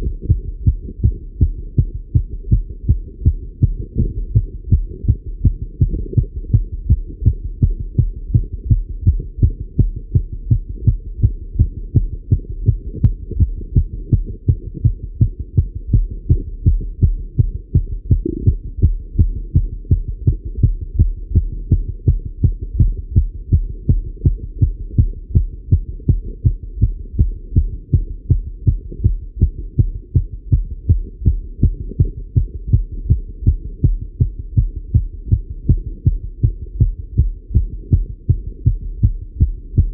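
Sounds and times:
fast heartbeat through stethoscope: 0.0 - 39.9.

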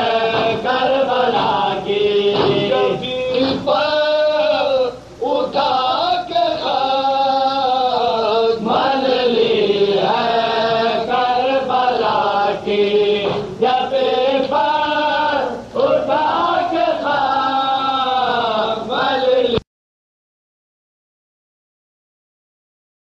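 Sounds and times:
men chanting a lament: 0.0 - 19.6.

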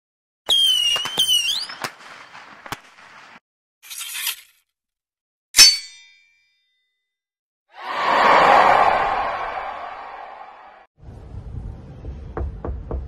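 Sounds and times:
rising whistling tones: 0.5 - 1.9.

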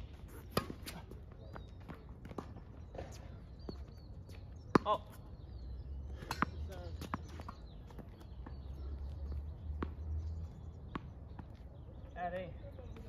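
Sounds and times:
bird chirps: 0.1 - 13.0
tennis ball bouncing: 6.2 - 8.7, 9.3 - 10.2, 10.8 - 11.6.

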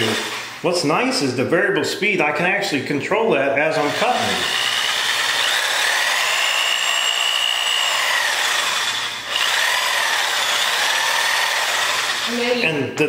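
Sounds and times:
jigsaw cutting countertop: 0.0 - 0.5, 3.8 - 12.6.

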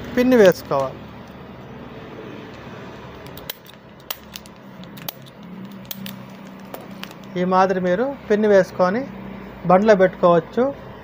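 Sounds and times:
plastic packet handling noise: 2.5 - 7.4
shells clicking: 3.1 - 7.3.

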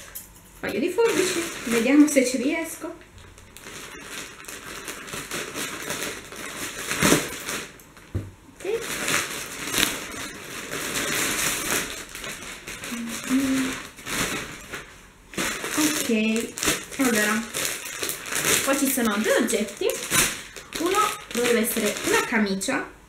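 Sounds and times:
plastic bag crinkling: 0.7 - 22.7
scissors cutting plastic: 8.6 - 14.4, 15.4 - 22.4.

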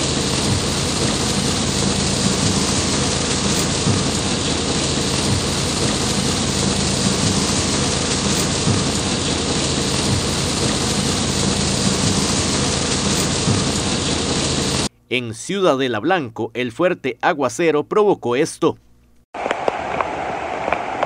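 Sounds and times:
car hum: 0.0 - 14.9
heavy rain on a car: 0.0 - 14.9, 19.4 - 21.0.

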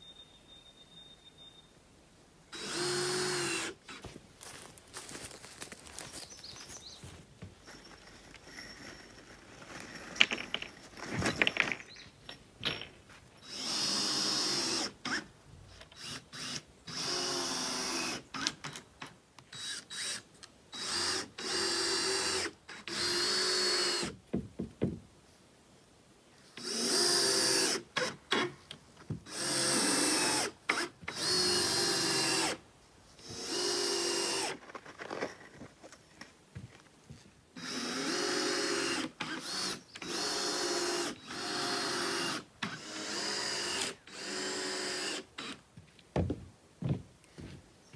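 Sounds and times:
cordless drill driving fasteners: 2.6 - 4.0, 13.4 - 24.2, 29.2 - 32.6, 33.2 - 35.4, 37.6 - 45.7
knocks: 24.3 - 25.0.

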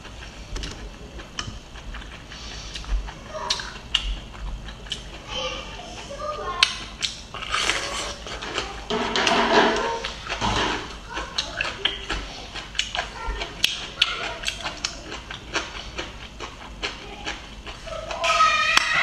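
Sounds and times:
crunchy chewing: 0.0 - 8.9, 10.0 - 19.0
crisp bite: 7.0 - 8.4.

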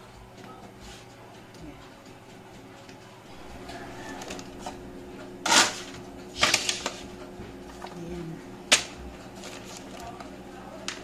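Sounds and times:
metal pans scraping on tray: 3.6 - 7.2
metal pans clicking and clattering: 5.4 - 7.1.

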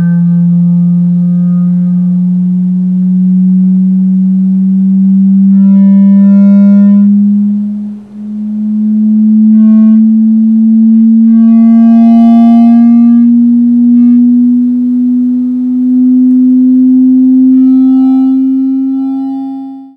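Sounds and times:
higher tones flaring: 0.0 - 19.9
rising sine tone: 0.0 - 19.9.

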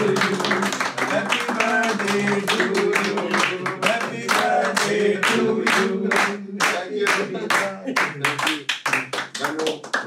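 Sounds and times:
man singing: 0.0 - 7.7
people clapping in rhythm: 0.0 - 10.0.

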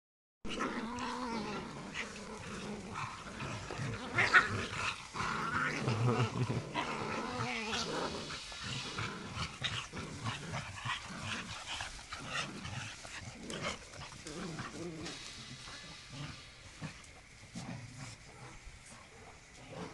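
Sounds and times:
dogs growling and scuffling: 0.5 - 19.9.

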